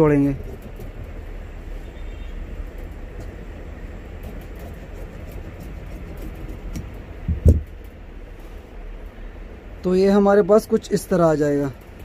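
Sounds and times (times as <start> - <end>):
shears snipping cloth: 4.2 - 7.1
short thump: 7.2 - 7.7.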